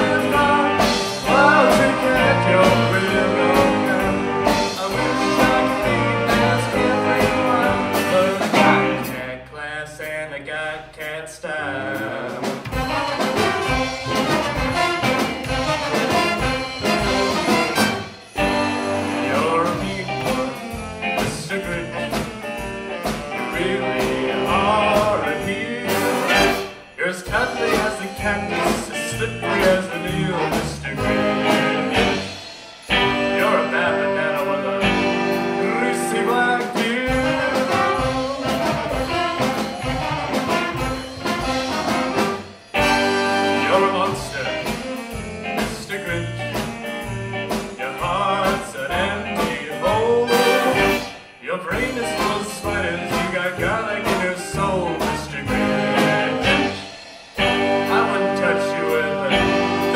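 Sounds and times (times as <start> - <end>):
horn section: 0.0 - 9.3, 12.3 - 47.2, 48.0 - 59.9
drums: 0.0 - 59.9
upright bass: 0.0 - 59.9
electric guitars: 55.4 - 59.9.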